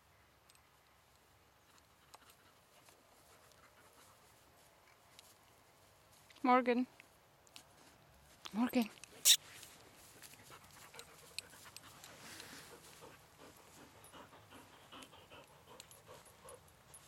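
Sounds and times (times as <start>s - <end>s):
dog panting: 2.0s - 4.4s, 10.0s - 17.0s.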